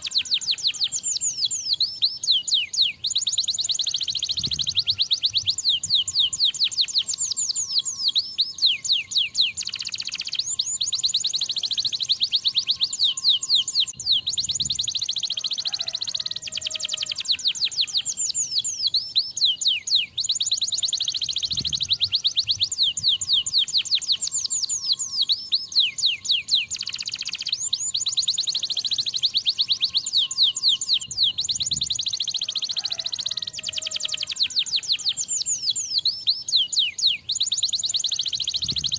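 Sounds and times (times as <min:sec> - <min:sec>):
canary singing trills: 0:00.0 - 0:38.9.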